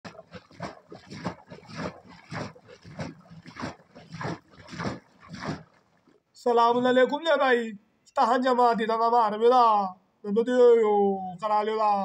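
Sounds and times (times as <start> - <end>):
liquid sloshing in a churn: 0.0 - 6.3.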